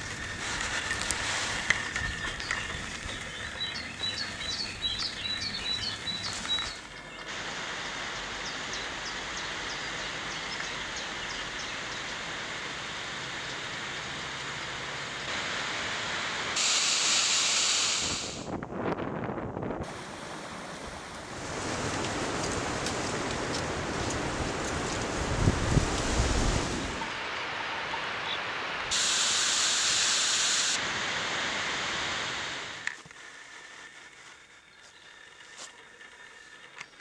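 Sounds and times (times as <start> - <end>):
stream running over rocks: 0.0 - 16.6, 19.9 - 33.3
bird chirping: 1.8 - 7.3
steady rushing noise: 7.3 - 34.2.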